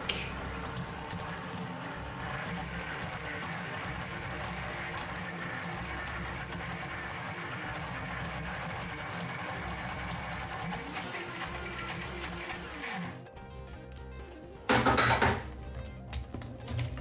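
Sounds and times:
blender churning frozen mix: 0.0s - 13.3s.

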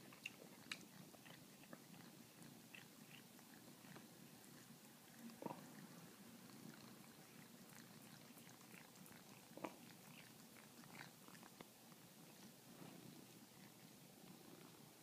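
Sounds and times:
cat chewing fruit: 0.0s - 15.0s.

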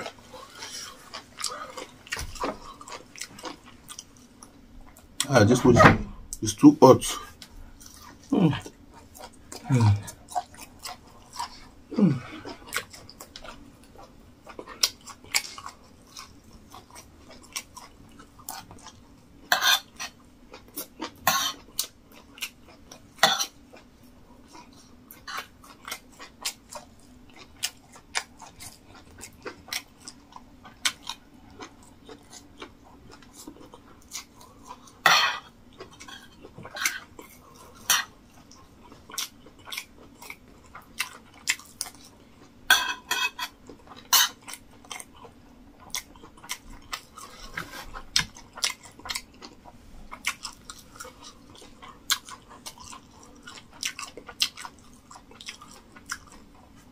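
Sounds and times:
chewing and mouth smacks: 0.0s - 5.3s, 7.4s - 19.1s, 19.9s - 35.1s, 35.7s - 42.6s, 43.4s - 56.9s
cutlery clinking on a plate: 42.7s - 44.4s.

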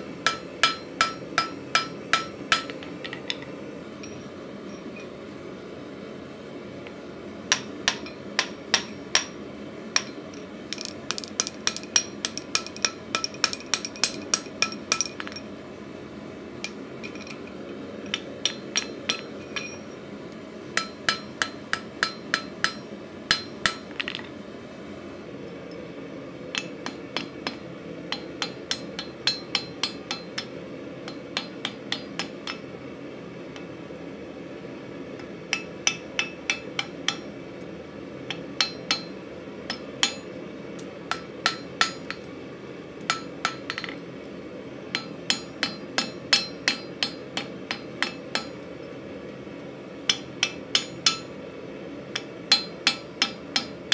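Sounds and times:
hammer striking hot steel on anvil: 0.0s - 5.1s, 7.5s - 15.5s, 18.0s - 20.0s, 20.8s - 24.2s, 26.5s - 32.7s, 35.2s - 37.4s, 38.3s - 40.4s, 41.1s - 42.3s, 43.0s - 44.0s, 44.9s - 48.7s, 50.1s - 51.4s, 52.1s - 53.9s.

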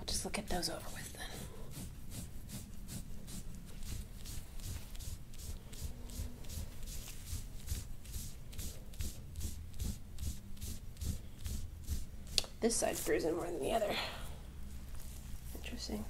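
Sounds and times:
tool scraping oiled skin: 1.3s - 13.2s.

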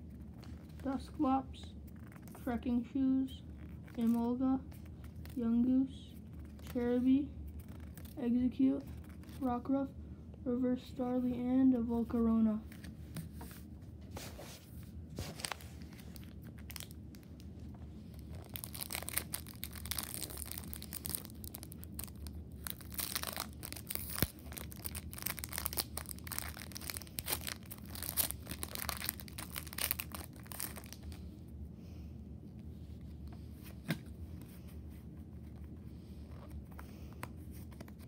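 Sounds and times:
foil wrapper crinkling: 15.3s - 17.4s, 18.1s - 31.2s.

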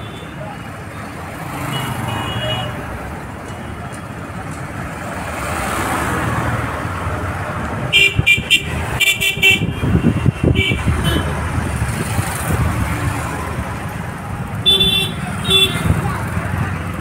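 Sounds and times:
street traffic rumble: 0.0s - 17.0s.

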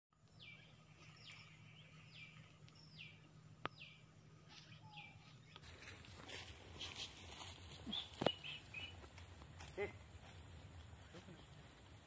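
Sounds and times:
faint bird calling: 7.8s - 9.0s.

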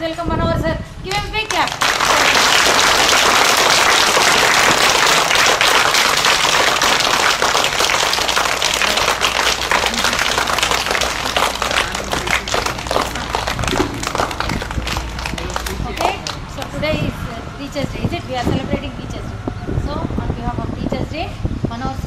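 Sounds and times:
people clapping: 1.1s - 16.8s.

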